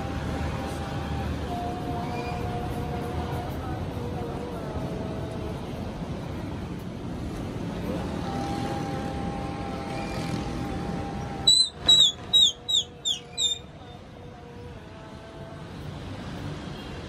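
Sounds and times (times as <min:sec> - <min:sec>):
city background rumble: 0:00.0 - 0:17.0
high falling chirps: 0:11.5 - 0:13.7.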